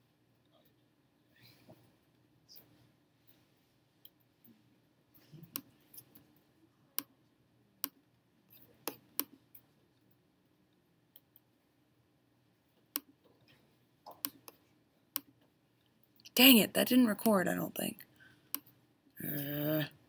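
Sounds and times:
computer mouse clicks: 7.8s - 9.4s, 14.1s - 15.3s.

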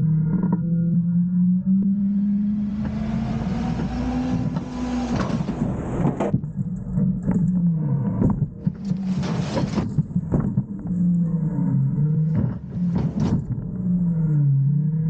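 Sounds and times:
garbage truck engine revving: 1.5s - 10.3s
trash sliding with rushing hiss: 2.9s - 6.3s.

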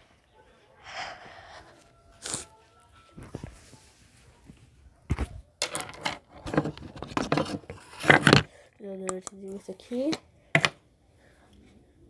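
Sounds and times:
handling clicks and knocks: 5.1s - 8.5s.

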